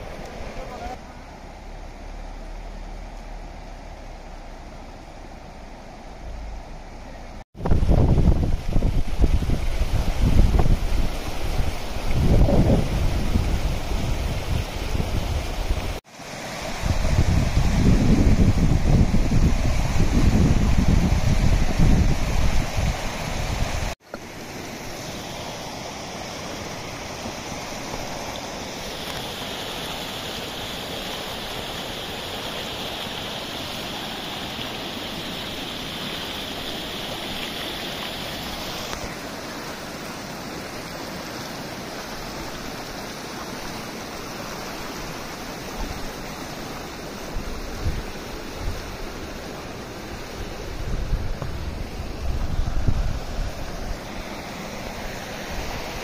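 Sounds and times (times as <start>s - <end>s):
stream rushing over rocks: 0.0s - 56.0s
wind buffeting microphone: 7.6s - 16.0s, 16.7s - 24.0s, 50.4s - 54.0s.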